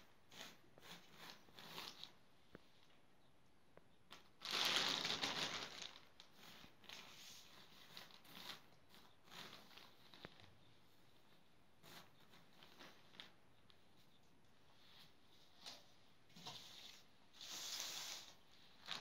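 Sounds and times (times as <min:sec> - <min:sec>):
plastic sheet crinkling and rustling: 0:04.1 - 0:14.2, 0:14.8 - 0:19.0.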